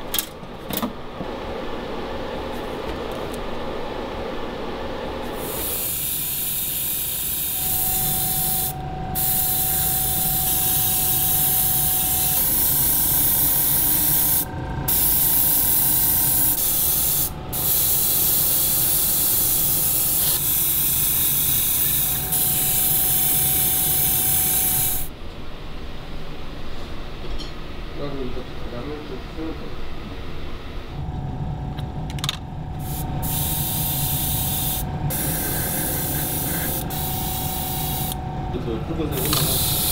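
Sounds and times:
paint sprayer hissing: 5.4s - 25.1s, 32.8s - 38.2s, 39.2s - 39.9s
faint steady whistle: 7.3s - 12.6s.

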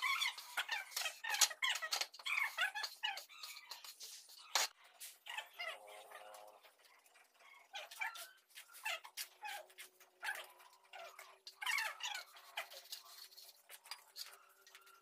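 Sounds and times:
dog whining and yelping: 10.2s - 12.4s.

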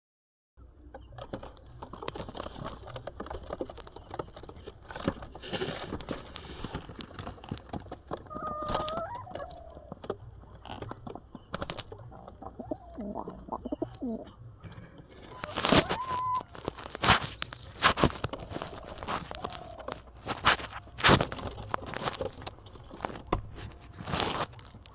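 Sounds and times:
pigeons scratching and scuffling: 0.9s - 24.9s
short bird calls: 15.2s - 16.6s.

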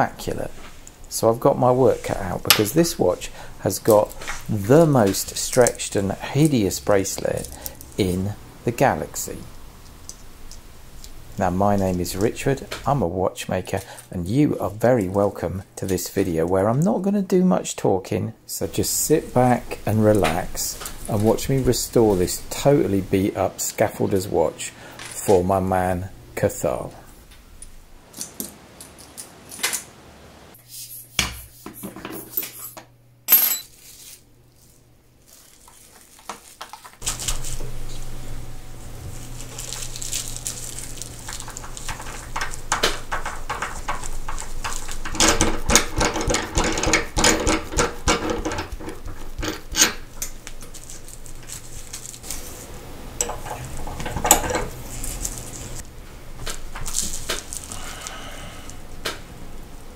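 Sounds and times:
bubble wrap crinkling: 33.7s - 45.1s, 50.0s - 52.7s, 54.7s - 58.3s.

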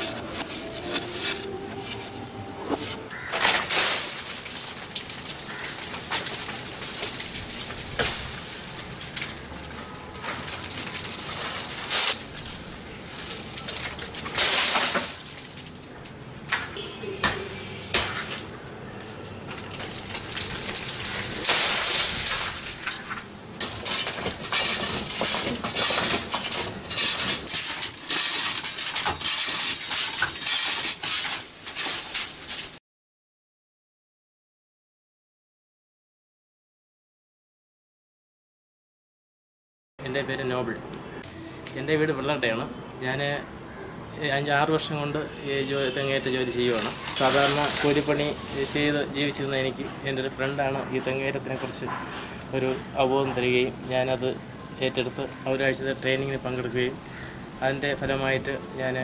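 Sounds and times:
palm fronds rustling: 0.0s - 16.5s, 18.4s - 32.8s, 45.8s - 49.6s.

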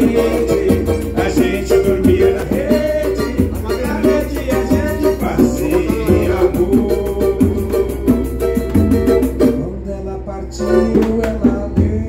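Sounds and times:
man singing: 0.0s - 8.6s, 9.4s - 12.0s
hand drum thumping: 0.0s - 9.6s
cavaquinho strumming: 0.0s - 12.0s.

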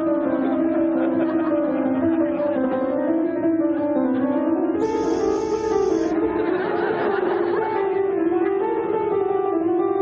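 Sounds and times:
instrumental dance music: 4.8s - 6.2s.

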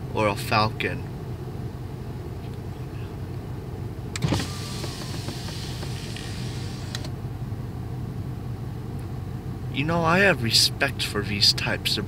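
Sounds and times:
low car hum: 0.0s - 12.0s
power window motor: 4.2s - 7.1s.

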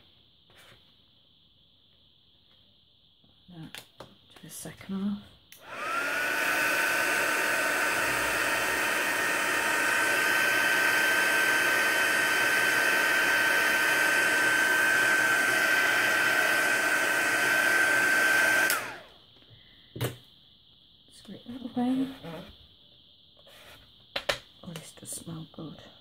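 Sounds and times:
heat gun blowing with whine: 5.5s - 19.2s.

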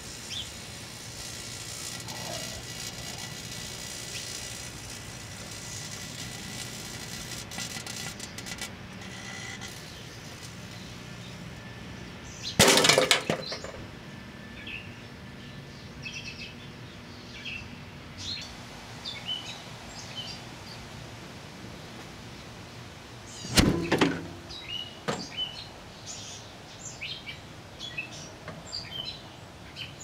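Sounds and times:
crackling: 0.0s - 10.7s
birds chirping: 0.1s - 6.0s, 8.2s - 12.6s, 13.3s - 21.0s, 21.7s - 30.0s.

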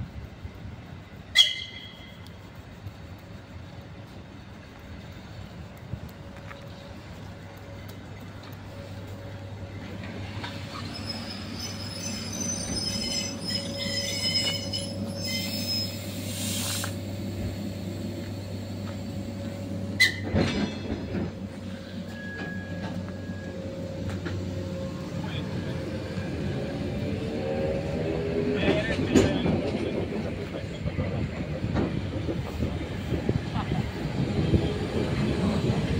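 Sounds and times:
train low hum: 0.0s - 35.9s
wheel squeal: 10.2s - 17.0s, 20.0s - 21.0s, 21.6s - 26.0s.

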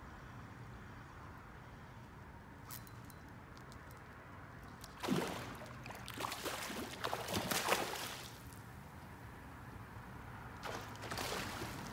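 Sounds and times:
water splashing: 4.9s - 8.6s, 10.6s - 11.9s.

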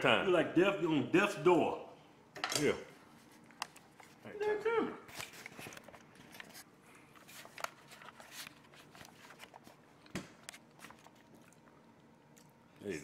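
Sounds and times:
camera handling rustling: 5.1s - 9.7s.

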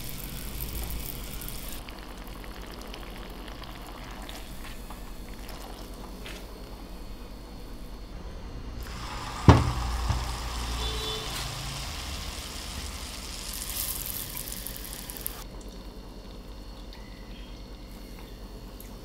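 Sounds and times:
oil sizzling and bubbling: 0.0s - 7.7s, 8.8s - 16.8s
food splashing into hot oil: 8.8s - 15.4s.

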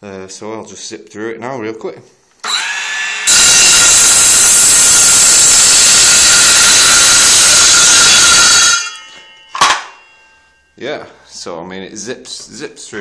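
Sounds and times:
circular saw cutting board: 2.4s - 10.4s.

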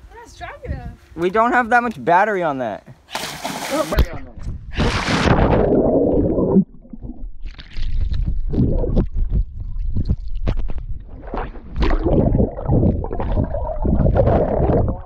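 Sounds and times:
muffled underwater bubbling: 4.7s - 15.0s.

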